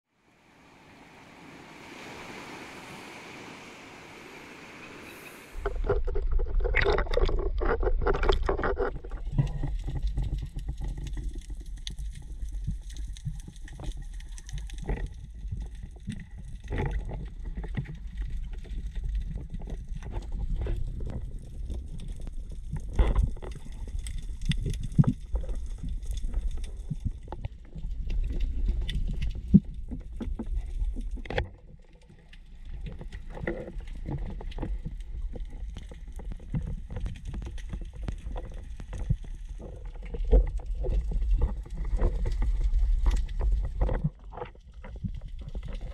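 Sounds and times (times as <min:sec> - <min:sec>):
small waves washing on rocks: 0:00.5 - 0:06.9
low underwater rumble: 0:01.0 - 0:45.9.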